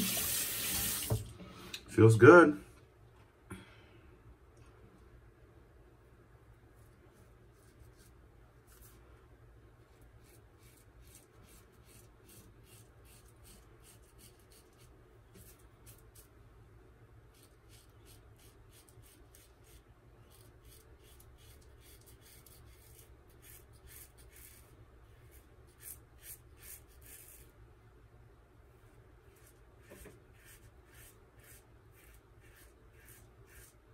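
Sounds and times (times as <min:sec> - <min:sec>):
razor scraping stubble: 0:17.3 - 0:24.7, 0:25.3 - 0:27.5, 0:29.3 - 0:33.8.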